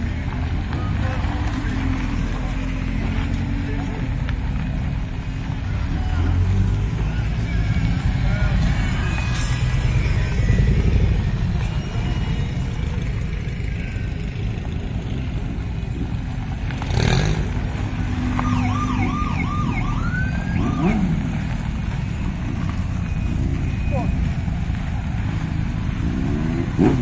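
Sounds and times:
motorcycle trikes rumbling past: 0.0 - 27.0
warbling siren-like tone: 18.4 - 21.2.

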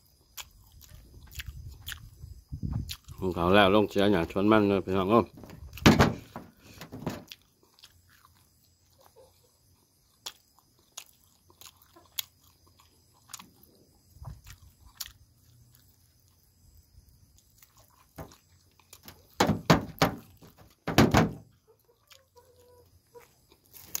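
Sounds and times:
person chewing and smacking: 0.0 - 3.5, 5.6 - 19.4, 21.5 - 24.0
small crunches: 0.1 - 4.0, 5.2 - 24.0.

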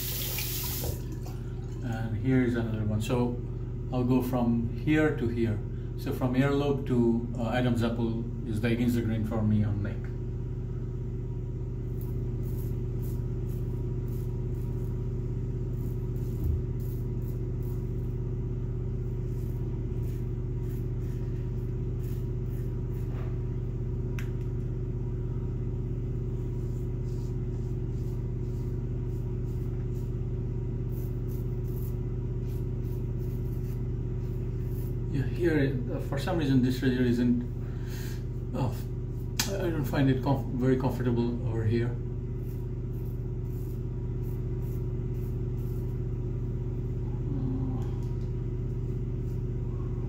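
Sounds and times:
low machine hum: 0.0 - 50.0
razor cutting stubble: 11.9 - 15.0, 15.7 - 18.2, 19.2 - 23.2, 30.9 - 35.2, 42.4 - 46.0.

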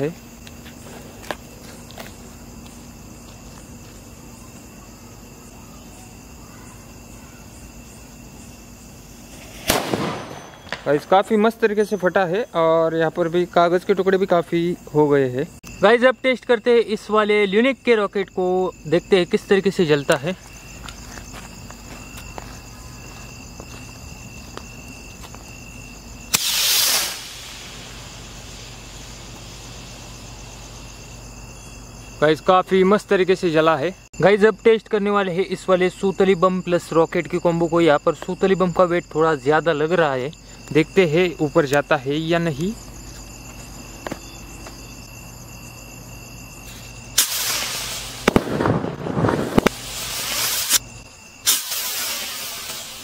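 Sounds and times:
crickets chirping: 0.0 - 53.0
sharp firework cracks: 9.4 - 11.1, 26.3 - 28.7, 47.2 - 50.8, 51.4 - 53.0
rocket launch pop: 9.5 - 10.9, 26.3 - 27.9, 47.2 - 50.8, 51.4 - 53.0
rocket hissing rush: 26.3 - 30.2, 47.1 - 53.0.

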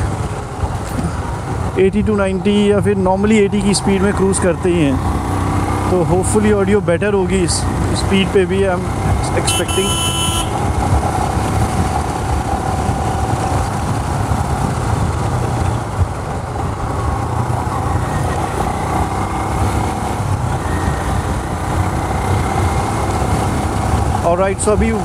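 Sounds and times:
motorcycle engine running: 0.0 - 25.0
wind and road noise: 0.0 - 25.0.

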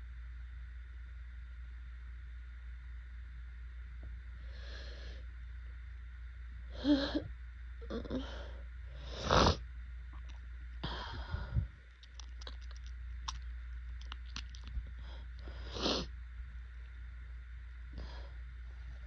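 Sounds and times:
person sniffing: 15.5 - 16.1.

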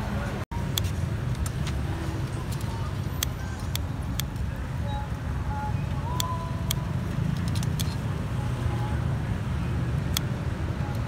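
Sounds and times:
low street rumble: 0.0 - 11.0.

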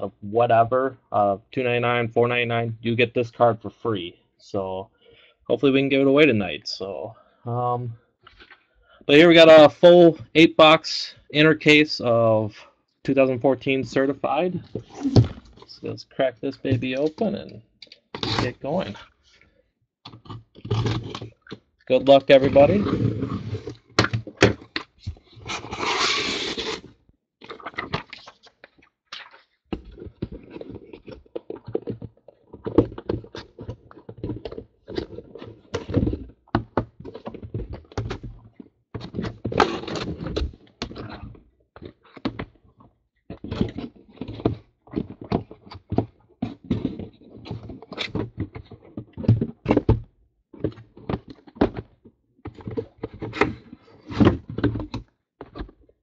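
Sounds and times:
cardboard scraping and rustling: 14.7 - 15.7, 18.2 - 19.0, 20.1 - 28.6, 29.8 - 41.2.

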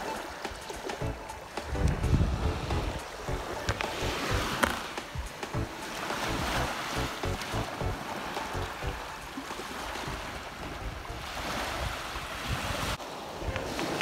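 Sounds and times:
small waves washing on sand: 0.0 - 14.0
wind rumble on microphone: 1.1 - 4.6, 10.0 - 13.9.

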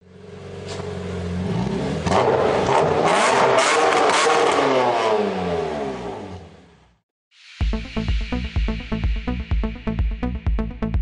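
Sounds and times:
car engine revving: 0.1 - 6.9.

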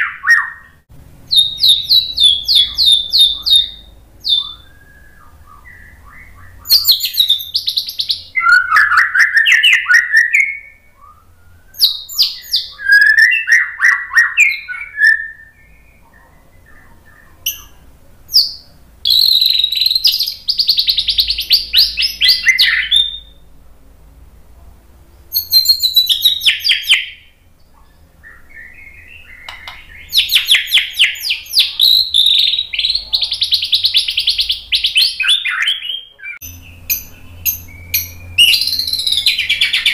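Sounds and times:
songbird singing whistled phrases: 0.0 - 23.4, 25.3 - 39.9.

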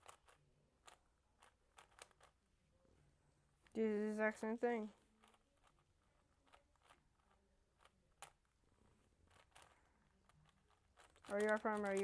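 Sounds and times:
puzzle cube plastic clicks: 0.0 - 2.4, 4.9 - 8.6, 9.2 - 12.0.

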